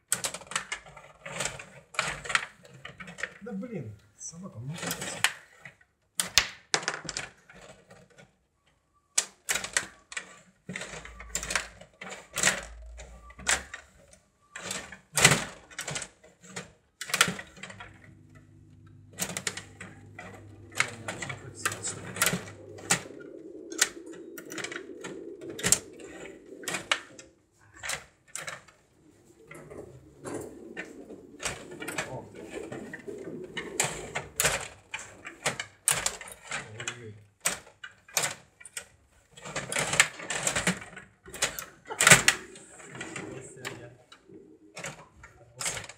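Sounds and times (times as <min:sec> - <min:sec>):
plastic clicks and clacks: 0:00.0 - 0:03.4, 0:04.7 - 0:18.2, 0:19.2 - 0:45.9
low steady hum: 0:17.2 - 0:37.2.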